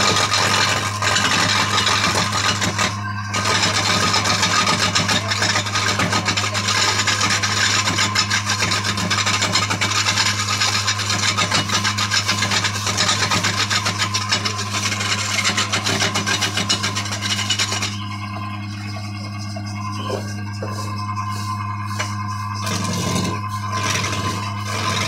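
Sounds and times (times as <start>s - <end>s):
lathe motor hum: 0.0s - 25.0s
tool rasping against spinning wood: 0.0s - 25.0s.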